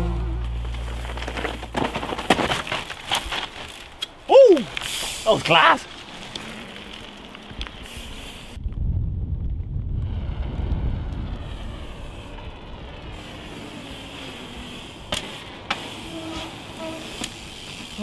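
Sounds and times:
bike tyre hiss on wet road: 0:04.4 - 0:08.6, 0:10.2 - 0:18.0
wind rumbling on microphone: 0:05.9 - 0:15.5.

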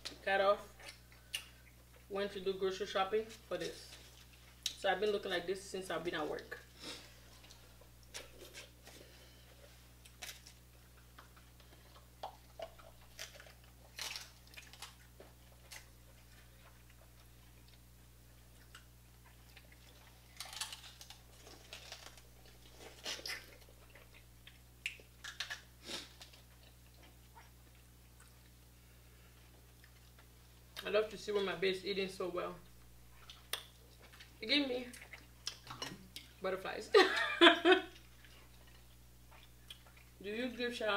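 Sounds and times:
chewing and biting: 0:07.3 - 0:28.7, 0:29.5 - 0:30.4, 0:33.1 - 0:36.4, 0:37.9 - 0:40.2
crab shells cracking: 0:10.0 - 0:16.0, 0:19.6 - 0:26.9.

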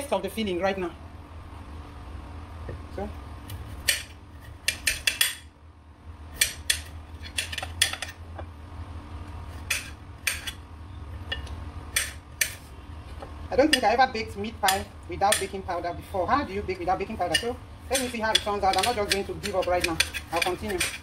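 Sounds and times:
knife slicing carrots on a plate: 0:17.3 - 0:21.0.

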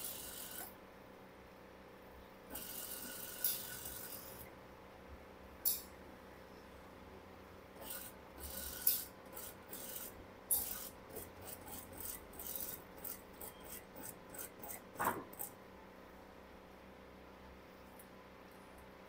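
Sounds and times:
sewing machine rasping: 0:02.5 - 0:04.4, 0:07.8 - 0:15.6.

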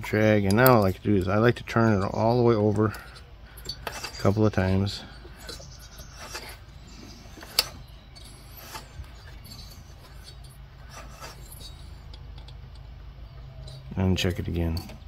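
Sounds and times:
engine rasping and rubbing: 0:00.0 - 0:15.0.

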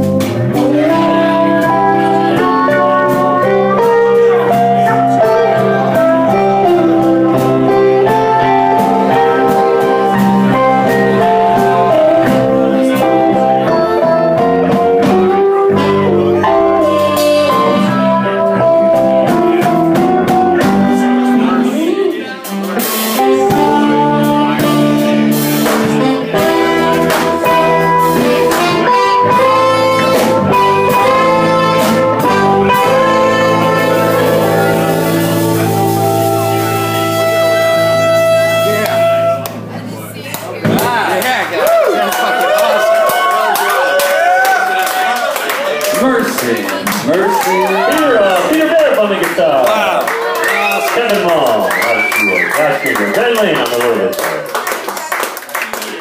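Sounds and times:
live blues band playing: 0:00.0 - 0:56.0.

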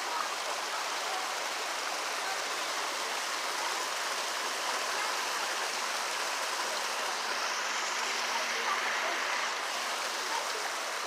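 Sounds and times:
stream water running over rocks: 0:00.0 - 0:11.0.

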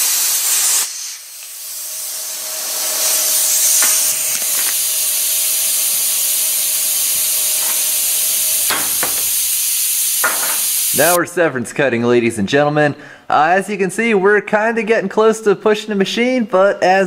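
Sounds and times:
plasma cutter arc hiss: 0:00.0 - 0:11.2
rush of air: 0:00.8 - 0:09.8.

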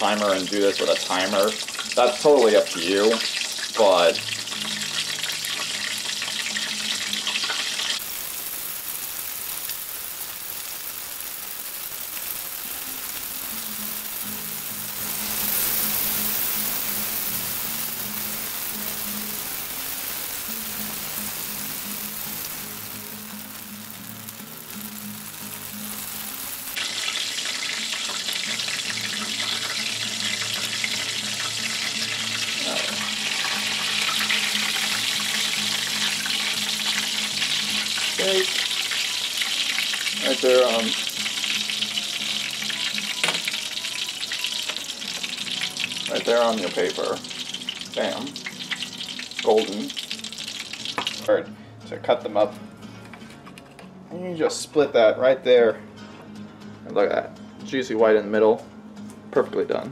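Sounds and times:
faint background music: 0:00.0 - 0:09.7, 0:11.2 - 0:59.9
chicken deep-frying in oil: 0:00.0 - 0:51.3.

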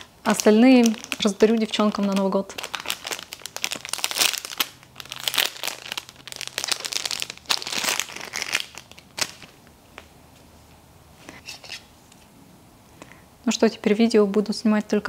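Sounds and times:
packaging crinkling: 0:00.0 - 0:10.1.

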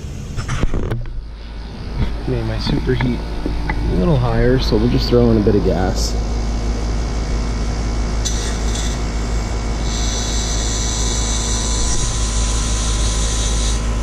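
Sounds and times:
condensing unit humming: 0:00.0 - 0:14.0
refrigerant hissing through hose: 0:09.7 - 0:14.0.

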